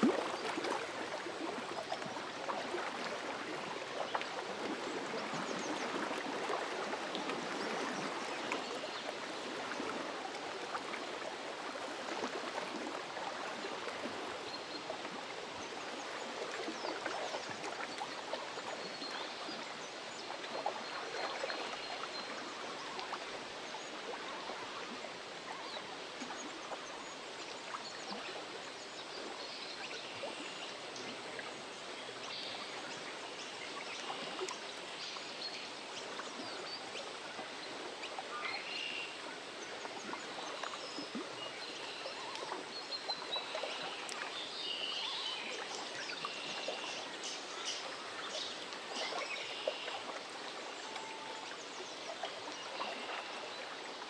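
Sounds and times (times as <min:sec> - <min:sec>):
water lapping at shore: 0:00.0 - 0:54.0.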